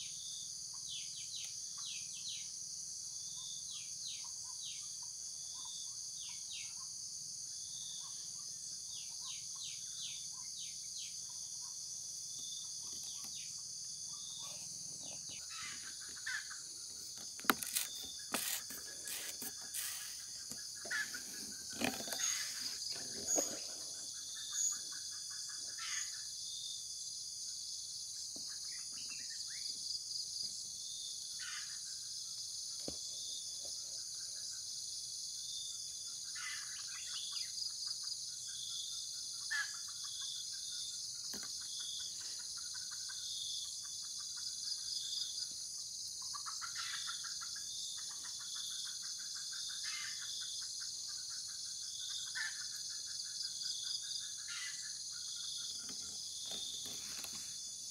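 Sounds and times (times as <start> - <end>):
crickets and insects chorus: 0.0 - 57.9
trilled animal calls: 14.1 - 26.1.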